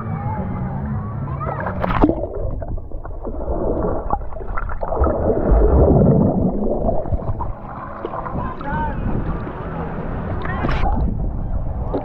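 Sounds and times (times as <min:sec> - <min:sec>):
water sloshing and gurgling: 0:01.4 - 0:12.0
low rush of water: 0:01.7 - 0:12.0.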